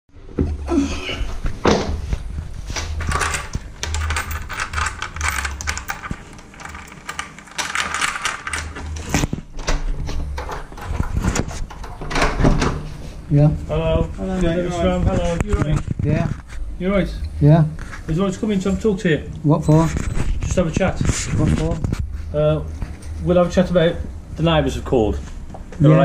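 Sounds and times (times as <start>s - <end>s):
door lock clicking and rattling: 3.0s - 12.8s.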